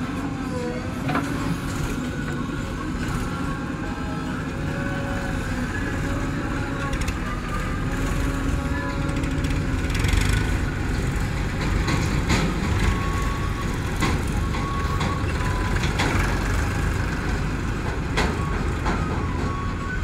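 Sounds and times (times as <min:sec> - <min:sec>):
diesel engines running: 0:00.0 - 0:20.0
sharp knocks and clanks: 0:11.4 - 0:16.4.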